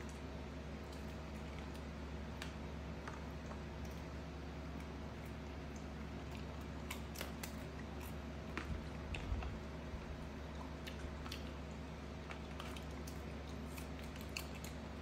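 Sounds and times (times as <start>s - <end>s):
steady low hum: 0.0s - 15.0s
wet chewing: 0.8s - 15.0s.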